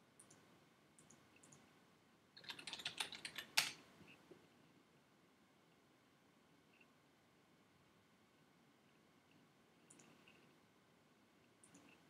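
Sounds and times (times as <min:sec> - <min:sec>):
typing on computer keyboard: 0:02.4 - 0:03.8.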